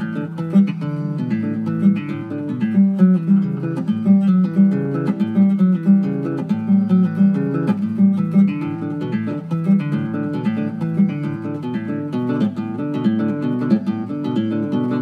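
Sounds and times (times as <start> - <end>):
classical guitar fingerpicked: 0.0 - 15.0.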